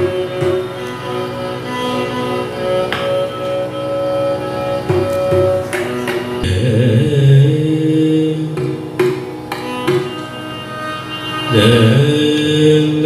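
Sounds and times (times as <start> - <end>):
violin melody: 0.0 - 13.0
person singing: 6.4 - 9.0, 11.5 - 13.0.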